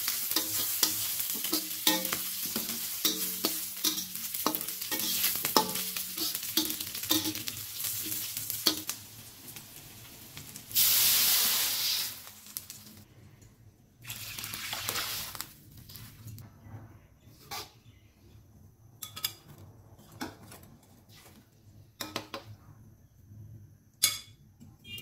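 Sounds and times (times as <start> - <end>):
metal spatula scraping a wok: 0.0 - 8.9, 17.2 - 18.0
water hissing in hot wok: 0.0 - 13.0, 14.0 - 15.5
aromatics sizzling in hot oil: 0.0 - 13.1, 14.0 - 16.4.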